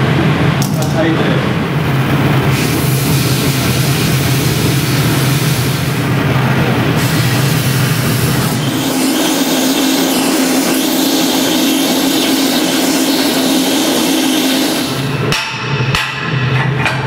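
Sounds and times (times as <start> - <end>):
cutting torch hissing: 2.0 - 15.3
hammer striking steel: 15.2 - 17.0.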